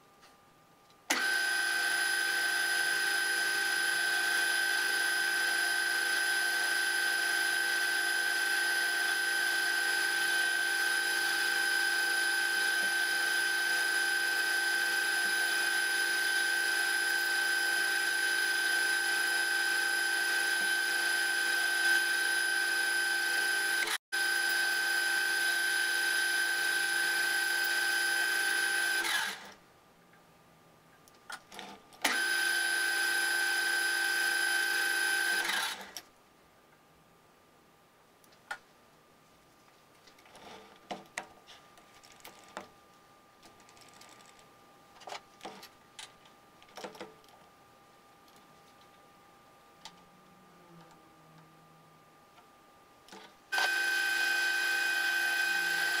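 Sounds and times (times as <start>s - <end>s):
lathe motor high whine: 53.5s - 56.0s.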